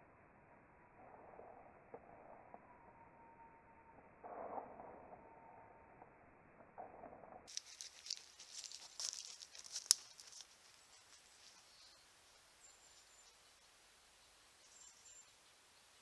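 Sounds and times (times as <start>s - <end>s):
hooves crunching dry leaves: 7.5s - 12.0s.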